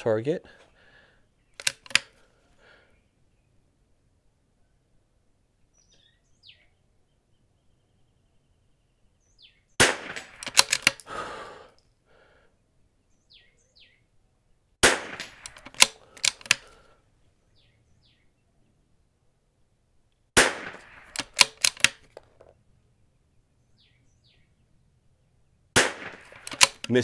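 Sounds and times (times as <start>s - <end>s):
sharp bolt clacks: 1.6s - 2.2s, 10.0s - 11.1s, 15.1s - 16.8s, 20.6s - 22.3s, 25.9s - 27.0s
rifle shots: 9.8s - 11.0s, 14.8s - 16.7s, 20.4s - 22.1s, 25.8s - 27.0s.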